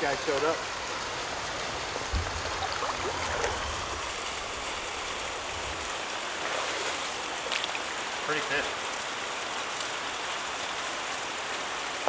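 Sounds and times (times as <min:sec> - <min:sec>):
creek water rushing: 0:00.0 - 0:12.0
low rumble: 0:02.0 - 0:05.9.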